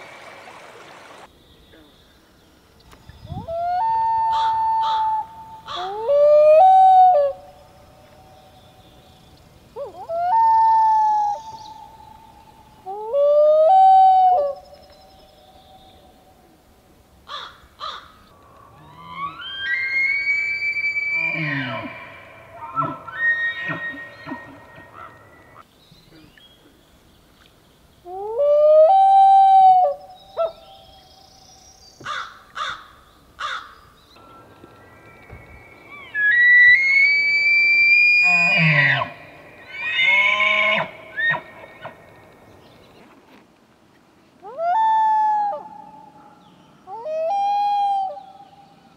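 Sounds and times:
loon wail calls: 0:18.8 - 0:25.2, 0:35.9 - 0:41.9.

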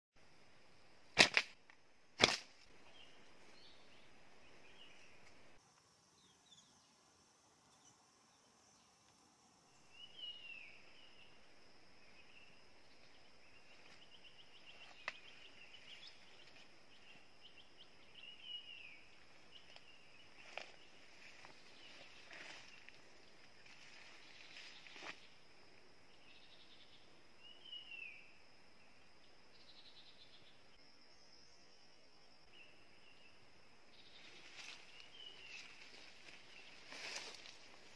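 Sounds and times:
insect drone: 0:00.2 - 0:37.9
slingshot snaps: 0:01.2 - 0:02.6.

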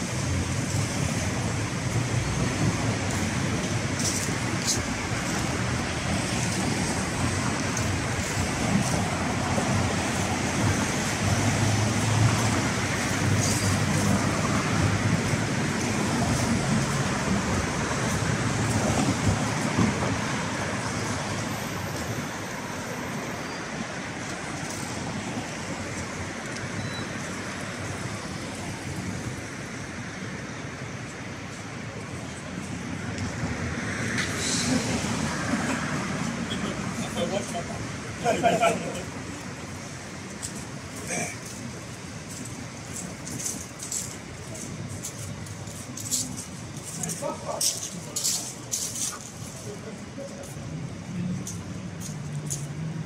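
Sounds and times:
city road traffic: 0:00.0 - 0:53.0.

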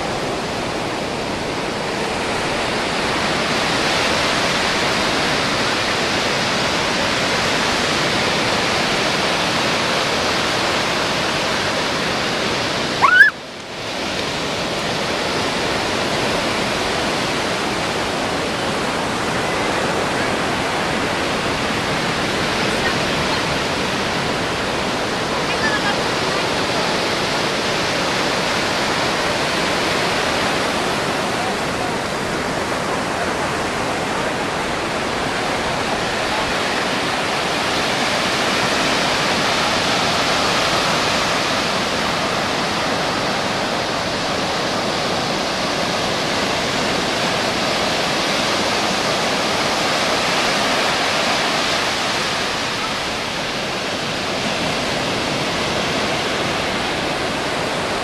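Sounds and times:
ocean surf breaking: 0:00.0 - 0:58.0.

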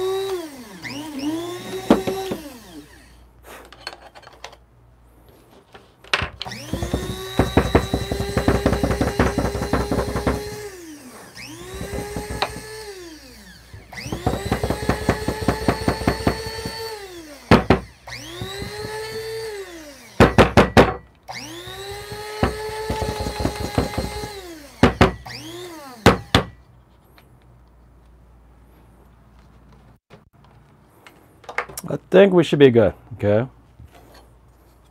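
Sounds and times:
coffee grinder motor whine: 0:00.0 - 0:03.2, 0:06.4 - 0:08.9, 0:09.8 - 0:20.2, 0:21.3 - 0:25.9
sharp knocks of grinder: 0:01.8 - 0:02.5, 0:06.4 - 0:10.6, 0:11.7 - 0:12.8, 0:13.8 - 0:16.8, 0:20.2 - 0:21.0, 0:22.1 - 0:25.3.

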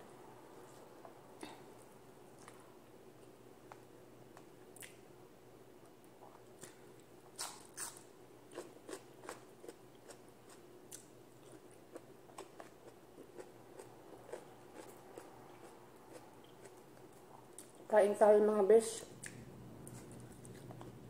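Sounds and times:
faint steady hum: 0:00.0 - 0:21.0
person chewing with mouth clicks: 0:04.4 - 0:05.0, 0:06.2 - 0:17.8, 0:19.2 - 0:21.0.

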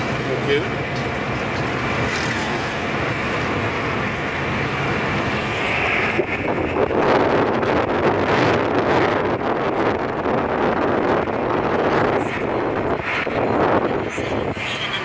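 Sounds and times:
car road and engine noise: 0:00.0 - 0:15.0
wind buffeting microphone: 0:00.0 - 0:15.0.

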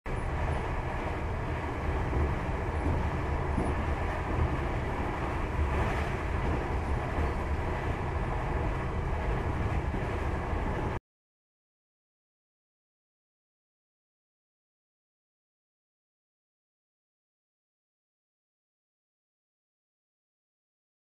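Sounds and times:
train interior rumble: 0:00.1 - 0:11.0
wheels rolling on track: 0:00.1 - 0:11.0.

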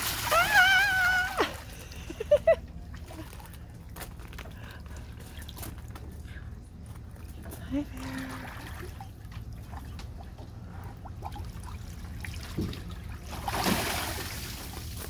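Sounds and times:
water splash: 0:00.0 - 0:01.7, 0:12.2 - 0:15.0
water trickling and sloshing: 0:00.0 - 0:15.0.

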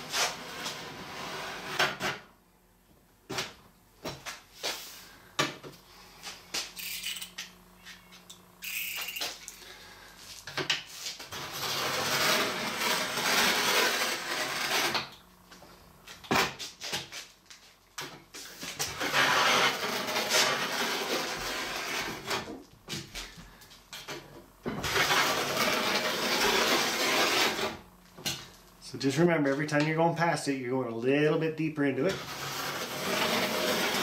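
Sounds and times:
knife scoring plastic sheet: 0:18.6 - 0:22.6, 0:24.9 - 0:27.8, 0:32.1 - 0:34.0.

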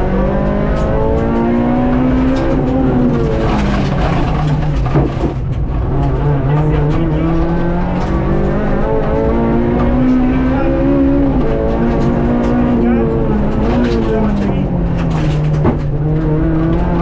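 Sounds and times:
car engine accelerating: 0:00.0 - 0:17.0.

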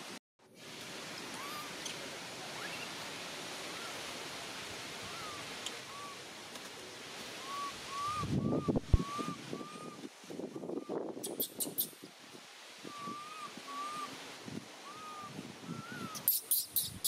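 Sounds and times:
outdoor hiss: 0:00.0 - 0:17.0
short chirping call: 0:11.2 - 0:12.0, 0:16.0 - 0:17.0.

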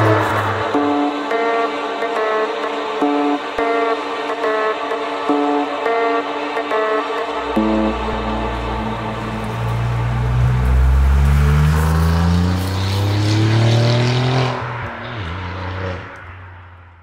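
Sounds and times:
car engine accelerating: 0:00.0 - 0:03.8, 0:07.3 - 0:17.0.

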